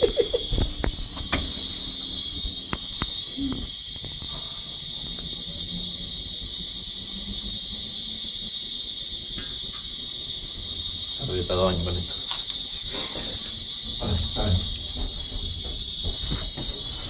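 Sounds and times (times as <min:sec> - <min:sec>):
fat sizzling in a pan: 0:00.0 - 0:17.0
crackles and pops: 0:00.2 - 0:05.6, 0:08.7 - 0:10.6.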